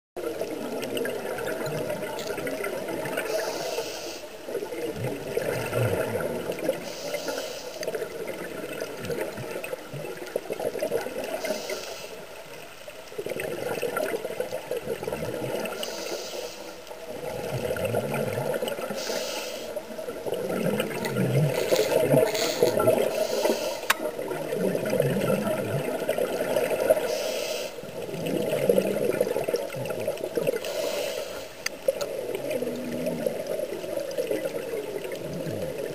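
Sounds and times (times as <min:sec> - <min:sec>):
exhaled bubbles gurgling: 0:00.2 - 0:35.9
underwater rush: 0:00.2 - 0:35.9
regulator breathing hiss: 0:03.3 - 0:04.3, 0:06.8 - 0:07.8, 0:11.4 - 0:12.2, 0:15.8 - 0:16.8, 0:18.9 - 0:19.8, 0:21.6 - 0:23.9, 0:27.0 - 0:27.8, 0:30.6 - 0:31.7.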